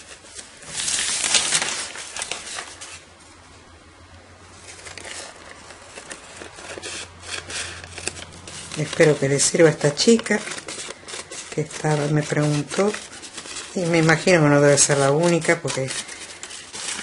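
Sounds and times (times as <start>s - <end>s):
paper rustling: 0.0s - 3.4s, 4.5s - 17.0s
scissors cutting paper: 4.9s - 17.0s.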